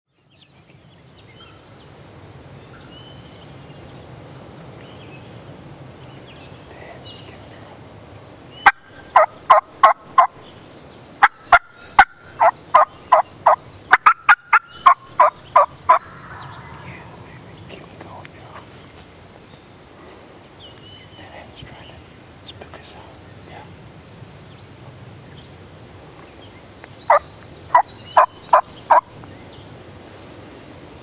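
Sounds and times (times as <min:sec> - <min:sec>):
songbird chirps: 0:00.1 - 0:31.0
turkey yelping: 0:08.6 - 0:10.3, 0:11.2 - 0:16.4, 0:27.1 - 0:29.1.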